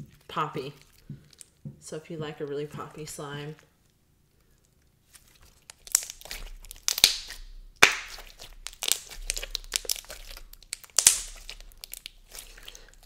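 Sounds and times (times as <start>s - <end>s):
slime crackling and popping: 4.6s - 13.0s.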